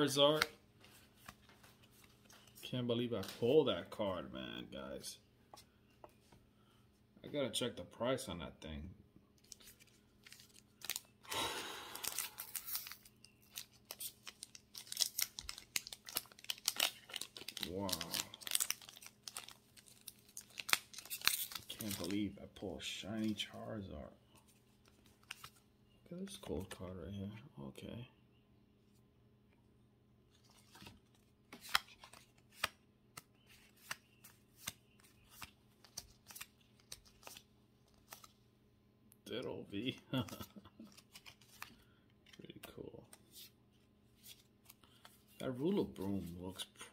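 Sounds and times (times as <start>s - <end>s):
cards rustling slide: 12.0s - 15.0s, 31.5s - 38.3s, 40.9s - 41.8s
cards clicking and snapping: 31.5s - 37.4s, 40.2s - 41.8s.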